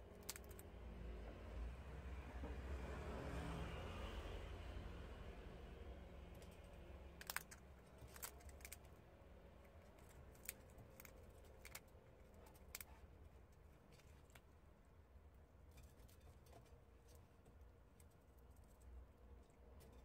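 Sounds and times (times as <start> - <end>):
prairie dog gnawing peanut shell: 0.0 - 0.6, 6.3 - 14.5.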